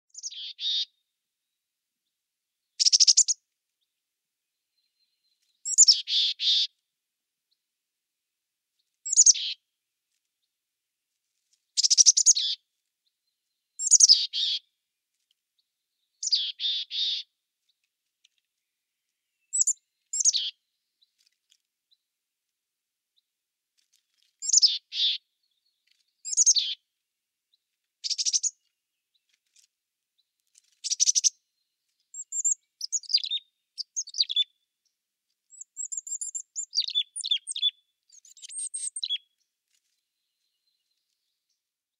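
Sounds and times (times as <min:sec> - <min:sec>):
chickadee chirping: 0:00.1 - 0:00.9, 0:02.8 - 0:03.4, 0:05.6 - 0:06.7, 0:09.1 - 0:09.6, 0:11.8 - 0:12.6, 0:13.8 - 0:14.6, 0:16.2 - 0:17.3, 0:19.5 - 0:20.6, 0:24.4 - 0:25.2, 0:26.2 - 0:26.8, 0:28.0 - 0:28.6, 0:32.2 - 0:34.6, 0:35.5 - 0:39.3.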